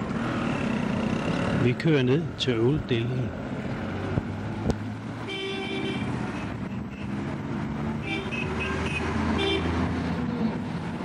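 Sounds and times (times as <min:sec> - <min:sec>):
traffic engines droning: 0:00.0 - 0:11.0
vehicle horns honking: 0:05.2 - 0:07.2, 0:08.0 - 0:09.8.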